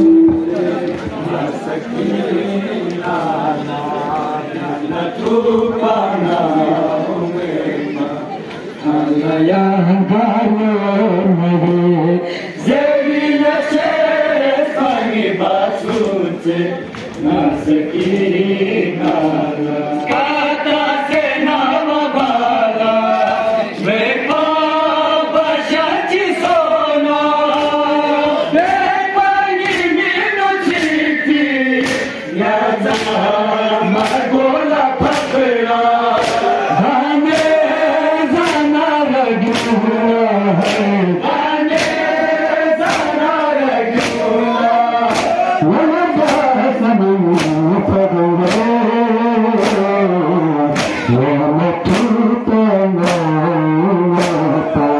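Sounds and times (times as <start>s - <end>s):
men chanting in chorus: 0.0s - 54.9s
sharp rhythmic strikes: 12.8s - 54.9s.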